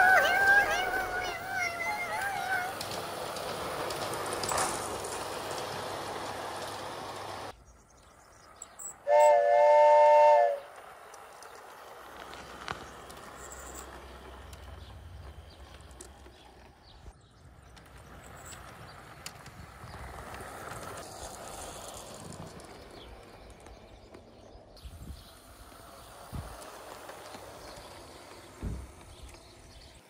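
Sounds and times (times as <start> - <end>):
toy train rattling on track: 0.0 - 9.5, 10.2 - 30.0
train whistle chord: 9.0 - 10.7.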